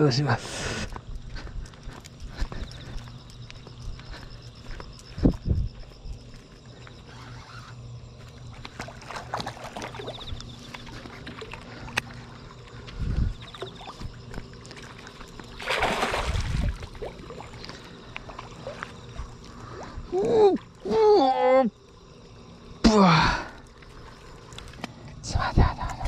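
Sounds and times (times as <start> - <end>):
low steady hum: 0.0 - 26.0
water splashing: 8.5 - 12.5, 13.4 - 20.9.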